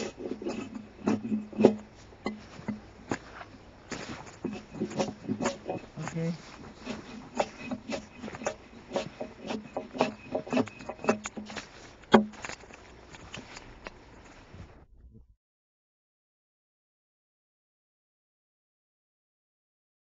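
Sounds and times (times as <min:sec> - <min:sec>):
axe striking log: 0:07.3 - 0:12.4.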